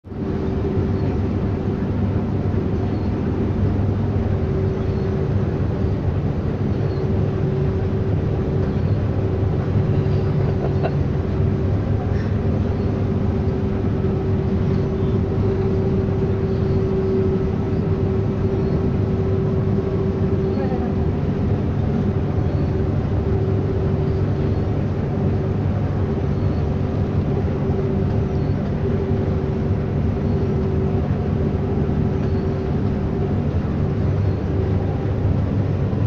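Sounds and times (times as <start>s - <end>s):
combine harvester engine drone: 0.0s - 36.0s
constant machinery whine: 0.0s - 36.0s.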